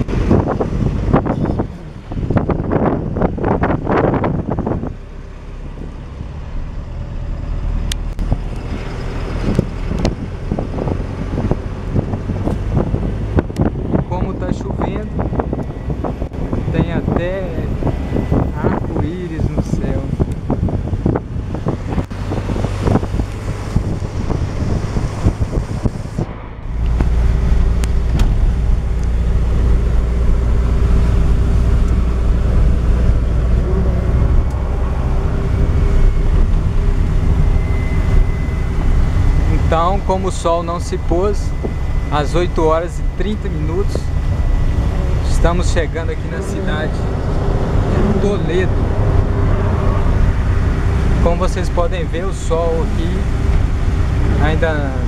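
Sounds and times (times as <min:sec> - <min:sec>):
bus engine and road rumble: 0:00.0 - 0:55.0.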